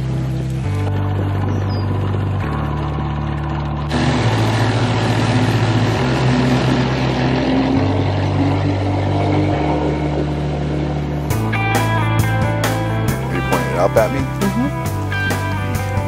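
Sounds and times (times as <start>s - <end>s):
water rushing off hull: 0.0s - 11.5s
background music with bass: 0.0s - 16.0s
outboard motor running: 0.0s - 16.0s.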